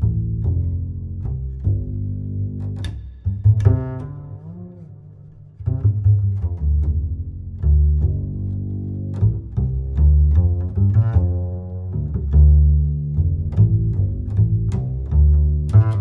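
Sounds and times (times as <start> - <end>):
deep bass line: 0.0 - 16.0.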